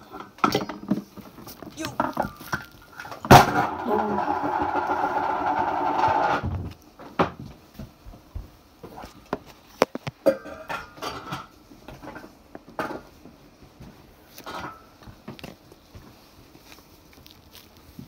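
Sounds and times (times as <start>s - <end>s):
kitchenware clattering: 10.2s - 13.1s.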